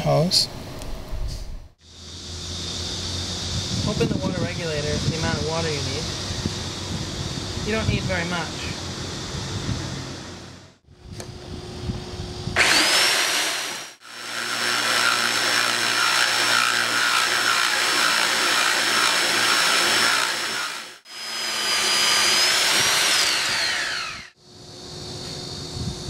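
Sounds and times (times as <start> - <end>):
core drill whining: 12.5 - 24.4
drill bit cutting wet tile: 12.6 - 24.4.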